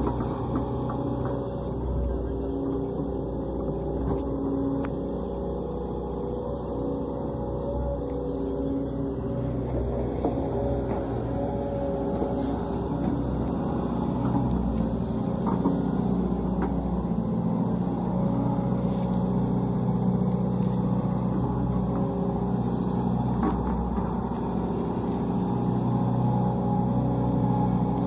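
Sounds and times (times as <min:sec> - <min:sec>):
excavator diesel engine running: 0:00.0 - 0:28.0
excavator bucket digging soil: 0:06.3 - 0:28.0.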